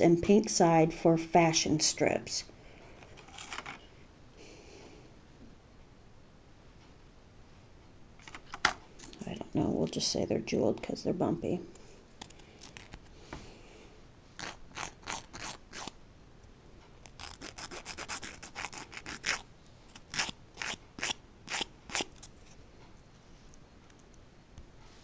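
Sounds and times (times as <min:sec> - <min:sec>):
nail file rasping: 0:14.4 - 0:16.0, 0:17.0 - 0:22.3.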